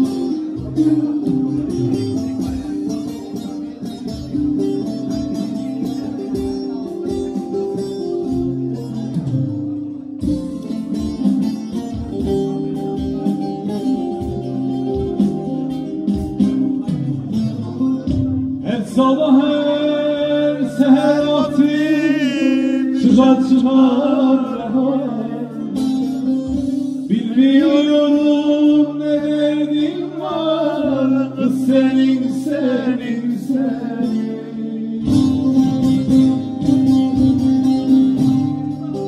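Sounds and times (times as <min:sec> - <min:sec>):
acoustic guitar: 0:00.0 - 0:39.0
plucked lute: 0:00.0 - 0:39.0
man singing into a microphone: 0:18.6 - 0:36.1.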